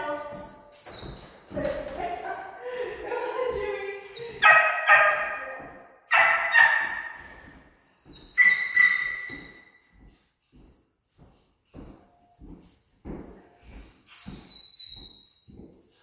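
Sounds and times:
dog barking in echoing room: 4.1s - 9.7s.

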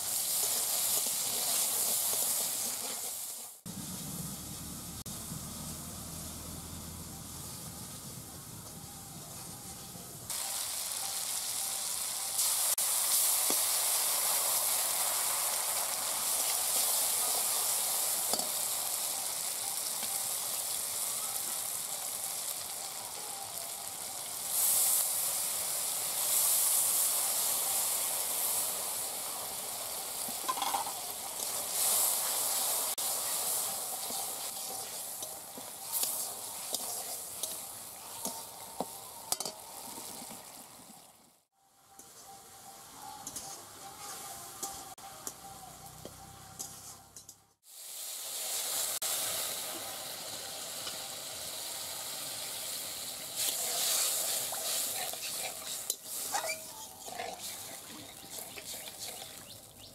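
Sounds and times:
food sizzling in hot oil: 0.0s - 8.0s, 10.3s - 59.9s
metal spatula scraping pan: 53.4s - 59.3s.

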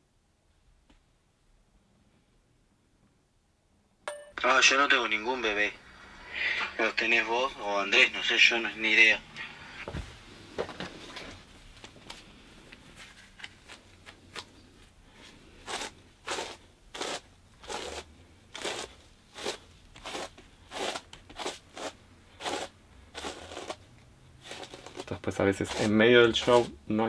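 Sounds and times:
faint rustles and clicks: 9.8s - 15.8s
hairbrush strokes through wig: 15.6s - 23.8s, 24.4s - 26.8s.

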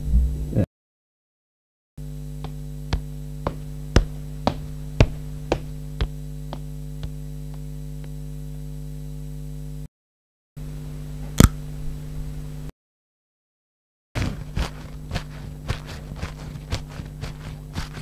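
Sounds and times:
steady hum: 0.0s - 0.7s, 2.0s - 9.9s, 10.6s - 12.7s, 14.2s - 18.0s
footsteps: 2.4s - 7.7s, 14.2s - 18.0s
dry pasta crunching: 14.2s - 18.0s.

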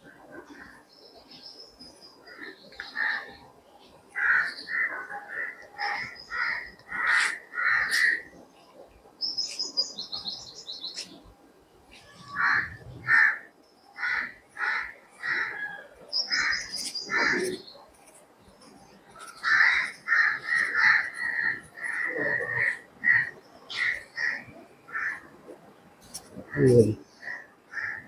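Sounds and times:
crows cawing: 4.2s - 8.3s, 12.2s - 15.8s, 16.4s - 17.6s, 19.2s - 25.3s, 26.5s - 28.0s
bird chirping: 9.2s - 11.2s, 16.0s - 17.9s.

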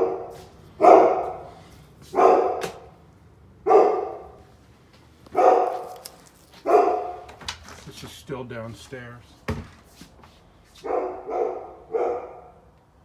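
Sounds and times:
dog barking: 0.0s - 2.9s, 3.6s - 4.4s, 5.3s - 7.3s, 10.8s - 12.7s.

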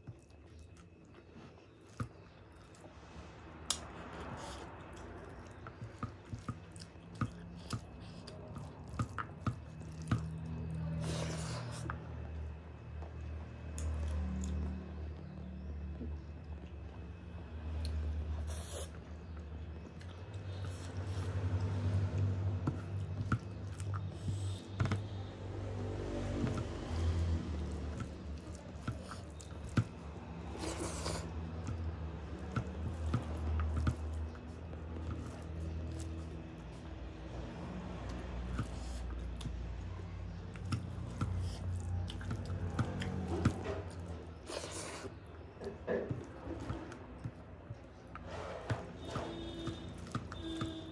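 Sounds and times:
wet squishing of food: 0.0s - 50.9s
person eating: 3.7s - 12.0s, 25.9s - 36.3s, 40.5s - 47.3s.

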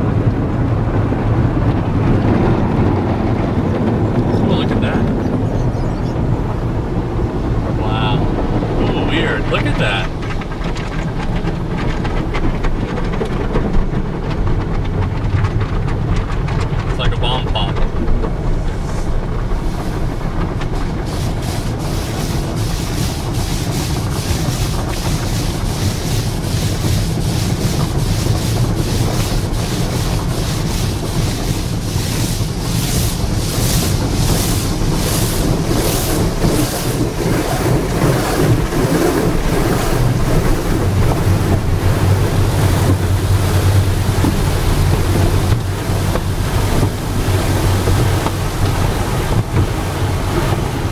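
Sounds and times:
water spraying: 7.7s - 12.0s, 16.6s - 50.9s
steady low hum: 14.8s - 50.9s
wash brushes sweeping over car: 16.8s - 50.9s.

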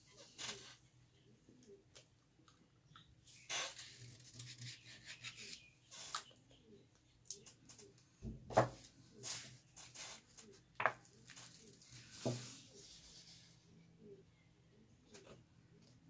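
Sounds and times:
paper rustling: 9.2s - 13.4s.

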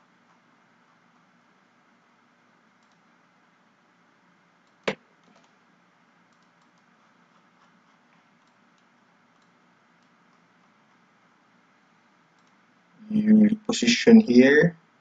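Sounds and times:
faint room hiss: 0.0s - 15.0s
computer mouse clicks: 2.8s - 3.1s, 4.6s - 5.6s, 6.3s - 10.8s, 12.3s - 12.6s.

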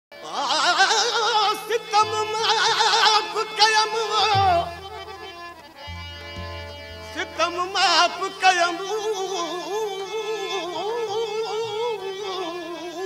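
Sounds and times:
harmonium drone: 0.8s - 12.9s
folk melody with wavering ornaments: 2.0s - 10.3s.

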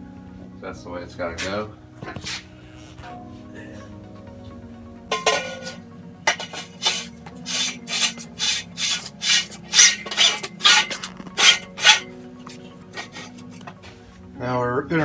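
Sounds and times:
metal tubes scraping together: 5.1s - 14.0s.

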